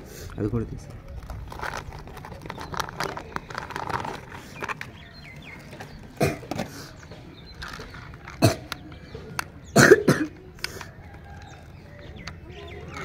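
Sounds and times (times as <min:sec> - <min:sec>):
plastic bag crinkling: 0:00.8 - 0:06.2, 0:07.4 - 0:08.6.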